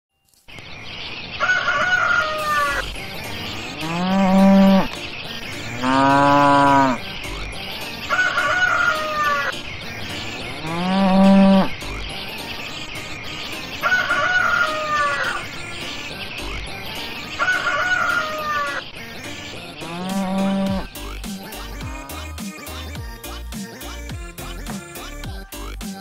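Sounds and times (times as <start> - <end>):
rooster crowing: 1.4 - 2.9, 8.1 - 9.5, 13.8 - 15.5, 17.4 - 18.9
cow mooing: 3.4 - 5.0, 5.7 - 7.0, 10.3 - 11.8, 19.8 - 20.9.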